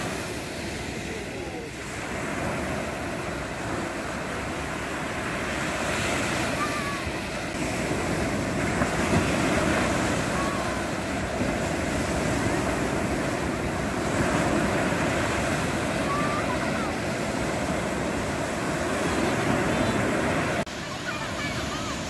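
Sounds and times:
sea surf breaking on sand: 0.0s - 22.0s
wind buffeting microphone: 0.0s - 22.0s.

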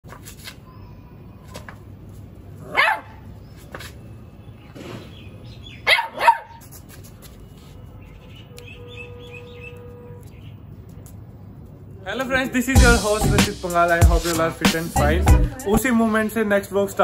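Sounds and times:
puppy barking in high yips: 2.7s - 3.2s, 5.8s - 6.6s.

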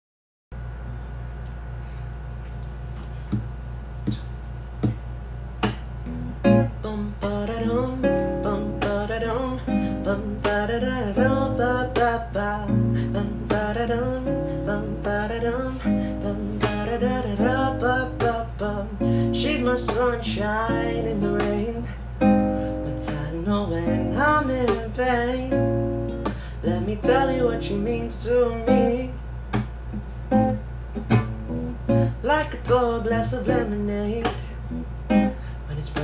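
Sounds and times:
steady low hum: 0.6s - 36.0s
acoustic guitar strumming: 5.6s - 36.0s
man singing wordless melody: 6.6s - 29.2s, 32.0s - 34.8s, 35.6s - 36.0s.

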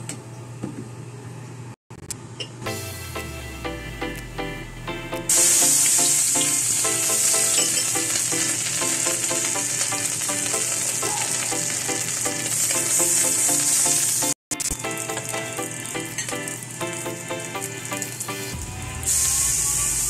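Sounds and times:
background music: 2.7s - 19.1s
ingredients sizzling in hot oil: 5.3s - 20.0s.

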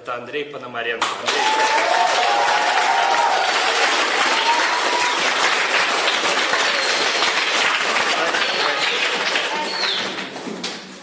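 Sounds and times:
crowd applauding: 1.1s - 10.8s.

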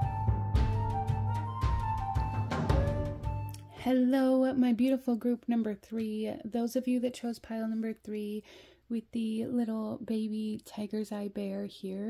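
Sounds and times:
deep drum beats: 0.0s - 3.5s
sustained melody: 0.0s - 3.7s.

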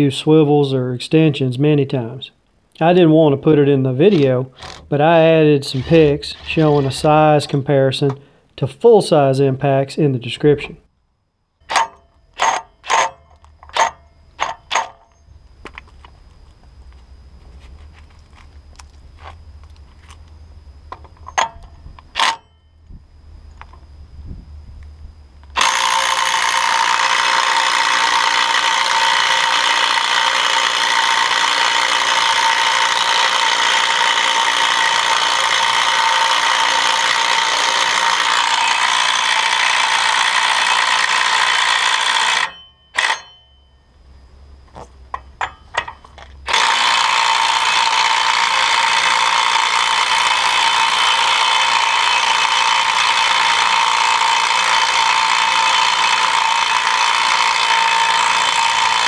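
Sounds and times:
impact wrench hammering: 4.1s - 5.0s, 11.6s - 15.2s, 25.6s - 43.8s, 45.1s - 59.0s.

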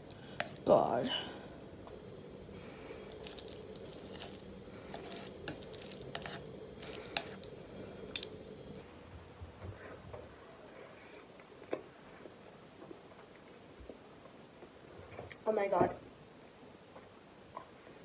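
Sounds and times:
chopsticks squishing noodles: 0.0s - 0.8s, 2.0s - 8.8s
chewing sounds: 3.0s - 8.8s.

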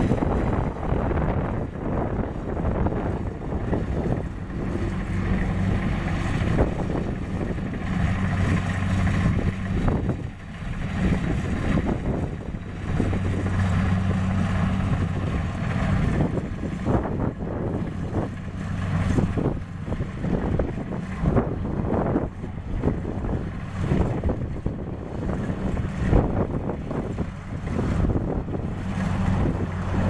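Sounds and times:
combine harvester diesel engine: 0.0s - 30.0s
wind noise on microphone: 0.0s - 30.0s.

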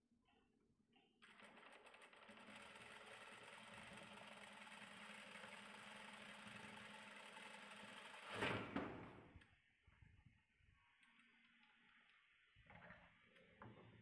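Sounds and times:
sewing machine running: 1.2s - 9.3s.

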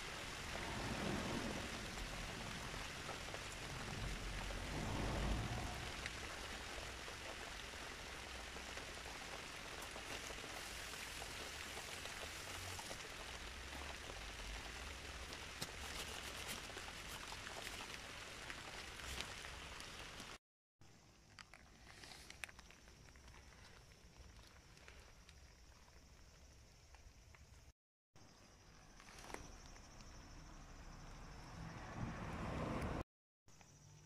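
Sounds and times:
steady rain hiss: 0.0s - 20.4s, 21.8s - 27.7s
low rumble: 0.1s - 7.4s.

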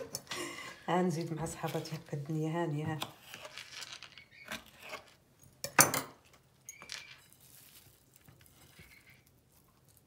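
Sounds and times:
kitchen utensils and dishes clinking: 0.0s - 2.2s, 2.9s - 7.4s.

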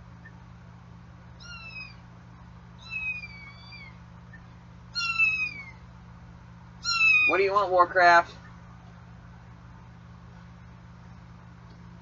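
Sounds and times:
kitten mewing: 1.4s - 2.0s, 2.8s - 4.0s, 5.0s - 5.8s, 6.8s - 7.4s.

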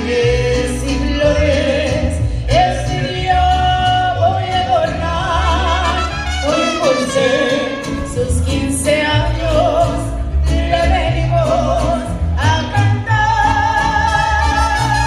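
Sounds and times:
bass line: 0.0s - 15.0s
person singing with vibrato: 0.0s - 15.0s
strummed guitars: 0.0s - 15.0s
trumpets playing melody: 5.6s - 8.4s, 14.0s - 15.0s.

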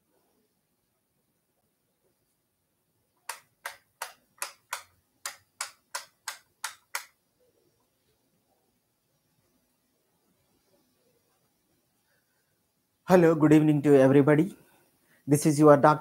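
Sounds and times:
sharp clicks or taps: 3.3s - 7.2s.

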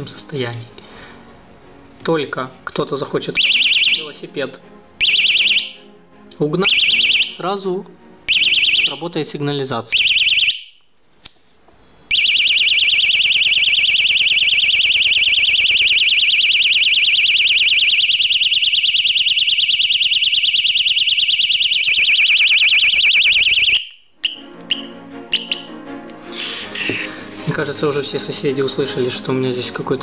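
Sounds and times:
warbling alarm siren: 3.4s - 4.2s, 5.0s - 5.9s, 6.6s - 7.4s, 8.3s - 9.1s, 9.9s - 10.8s, 12.1s - 25.7s
short alarm chirps: 5.0s - 5.8s, 21.6s - 25.7s.

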